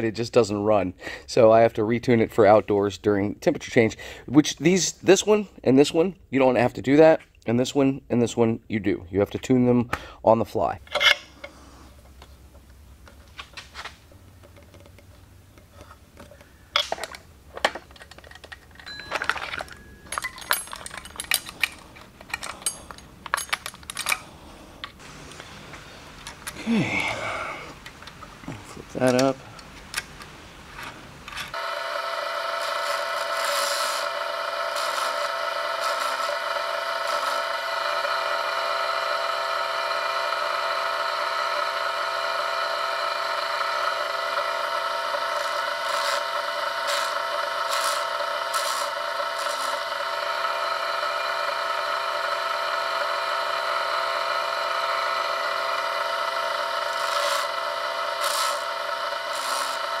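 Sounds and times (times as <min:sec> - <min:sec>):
electric motor whining: 0:21.1 - 1:00.0
grinding wheel rasping on chain: 0:31.5 - 1:00.0.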